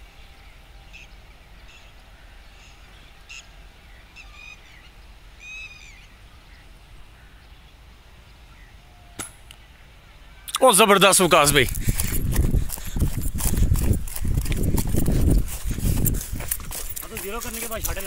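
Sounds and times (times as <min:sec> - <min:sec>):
birds chirping: 0:10.4 - 0:18.0.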